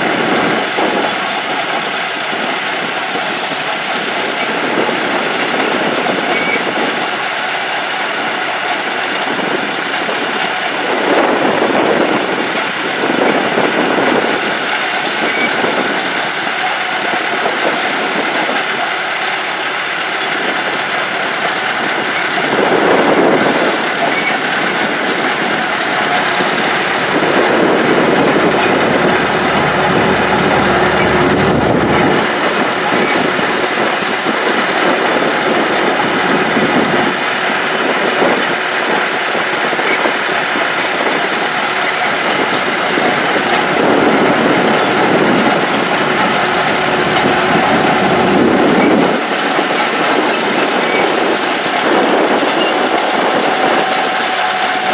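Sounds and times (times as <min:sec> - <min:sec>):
bulldozer diesel engine running: 0:00.0 - 0:54.9
steady high whine: 0:09.1 - 0:36.9, 0:40.2 - 0:54.9.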